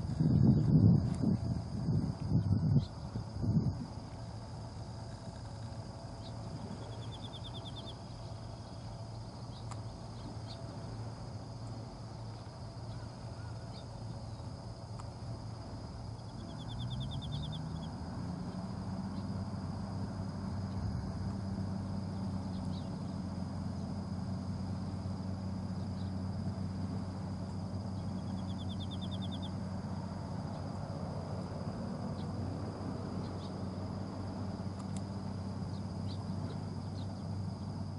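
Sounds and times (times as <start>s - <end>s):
boat engine running: 0.0s - 37.9s.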